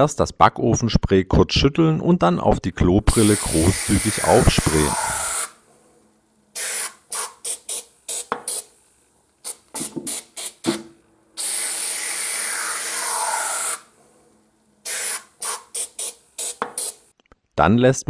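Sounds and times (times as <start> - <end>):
aerosol can spraying: 3.1 - 5.7, 6.5 - 14.1, 14.8 - 17.1.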